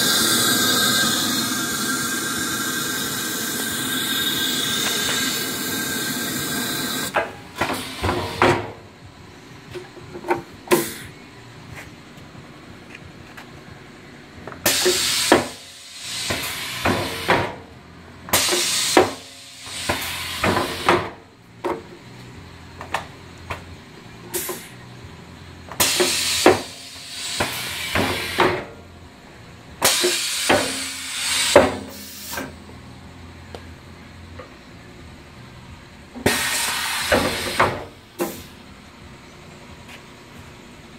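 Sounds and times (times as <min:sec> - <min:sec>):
compressed air hissing: 0:00.0 - 0:08.6, 0:10.7 - 0:11.2, 0:14.6 - 0:17.5, 0:18.3 - 0:20.9, 0:24.3 - 0:24.8, 0:25.8 - 0:28.6, 0:29.8 - 0:32.6, 0:36.2 - 0:38.6.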